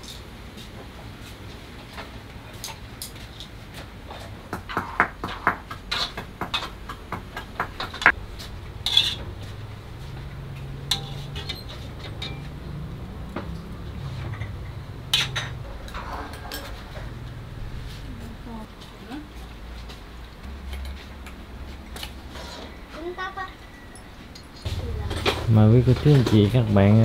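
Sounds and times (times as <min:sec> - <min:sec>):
utensils clinking on wok and plate: 0:07.7 - 0:17.5.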